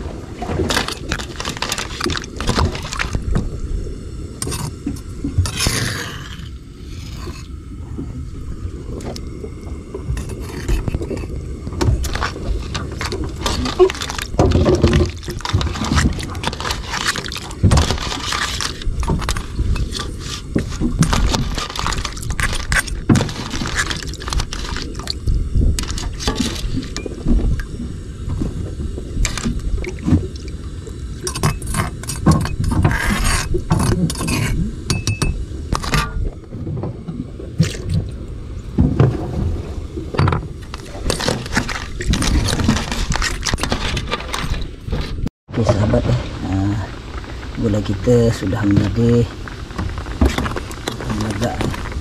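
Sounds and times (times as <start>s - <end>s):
steady low rumble: 0.0s - 32.8s, 45.5s - 52.0s.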